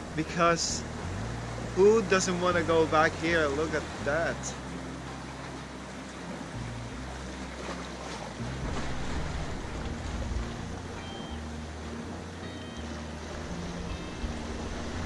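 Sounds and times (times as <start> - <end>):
sea washing against rocks: 7.7 - 11.4.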